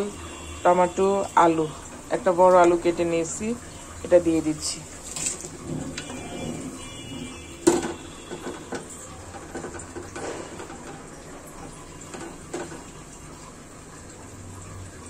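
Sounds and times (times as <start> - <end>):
steel bowl knocking on pan: 5.5 - 13.0.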